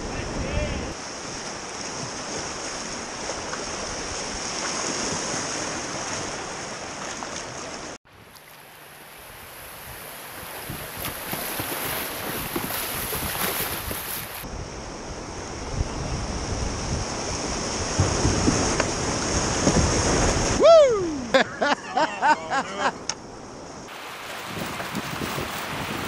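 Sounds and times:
whitewater rapids churning: 0:23.9 - 0:26.0.

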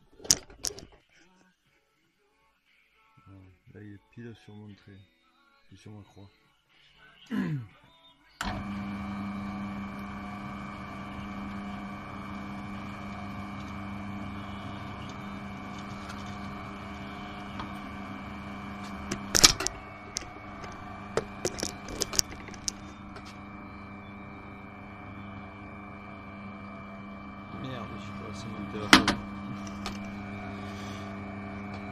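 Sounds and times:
drill bit boring into wood: 0:08.4 - 0:31.9
drill motor humming: 0:08.4 - 0:31.9.

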